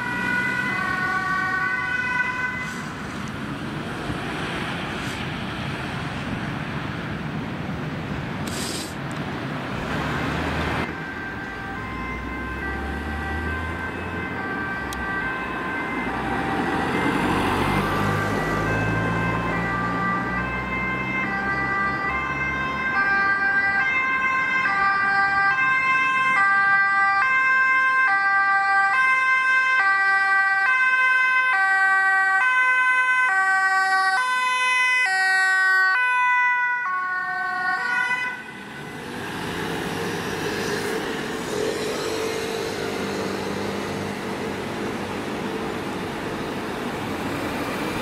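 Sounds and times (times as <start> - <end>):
two-tone siren: 0.0 - 2.9, 10.8 - 45.0
traffic engine rumble: 0.0 - 29.0, 36.9 - 48.0
road noise: 0.0 - 48.0.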